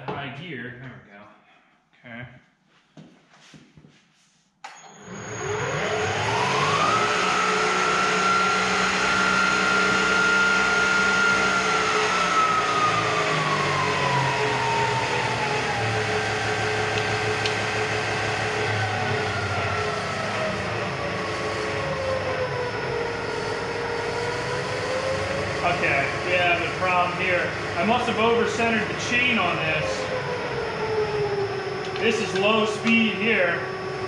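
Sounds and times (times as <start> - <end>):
milling machine motor whine: 4.7 - 34.0.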